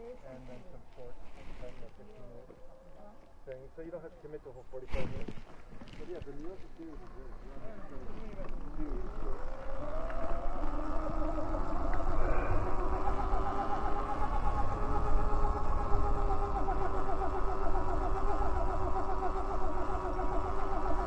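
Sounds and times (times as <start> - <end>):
electric bike motor whining: 5.8 - 21.0
wind on microphone: 7.8 - 21.0.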